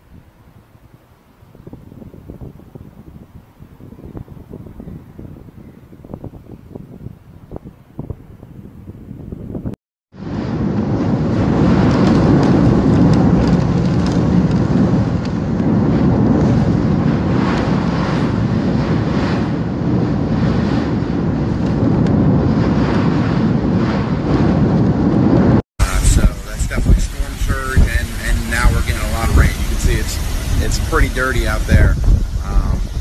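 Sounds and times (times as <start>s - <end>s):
wind and rain against window: 10.2s - 33.0s.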